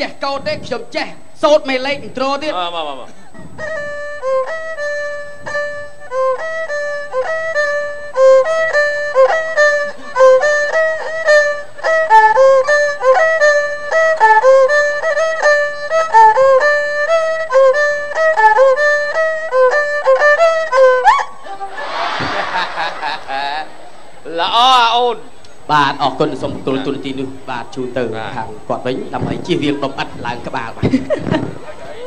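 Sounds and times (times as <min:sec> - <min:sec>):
bowed fiddle melody: 0:01.5 - 0:24.7.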